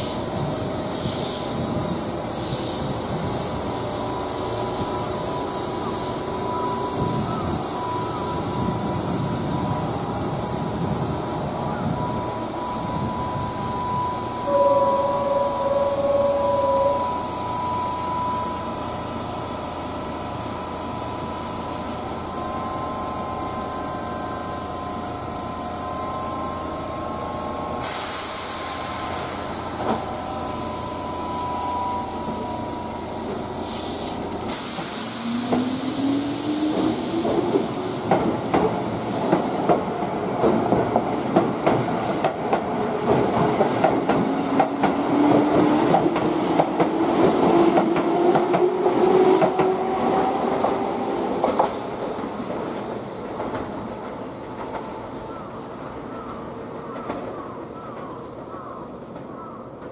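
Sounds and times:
electric train humming: 0.0s - 57.8s
air hissing: 21.0s - 31.4s, 32.0s - 39.5s.

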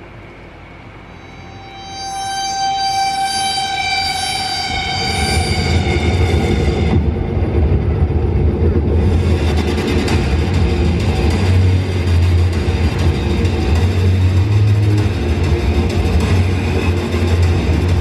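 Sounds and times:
horn-like chord: 1.1s - 7.1s
deep loud rumble: 5.0s - 18.0s.

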